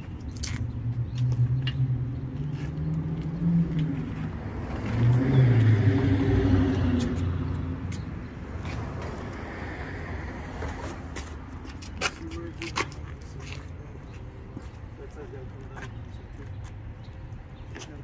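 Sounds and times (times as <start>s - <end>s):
vehicle engine accelerating: 0.8s - 7.9s.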